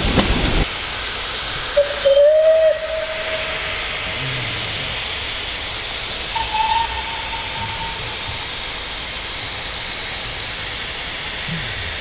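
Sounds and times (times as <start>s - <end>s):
steady steam hiss: 0.0s - 12.0s
steam locomotive whistle: 1.8s - 3.7s, 6.3s - 8.5s.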